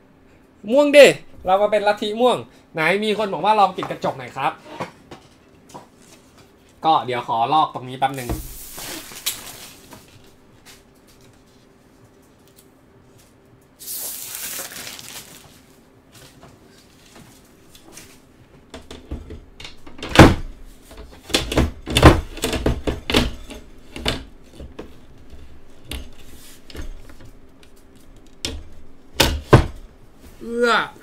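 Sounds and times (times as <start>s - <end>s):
film peeling off: 8.6s - 9.9s, 13.8s - 15.7s.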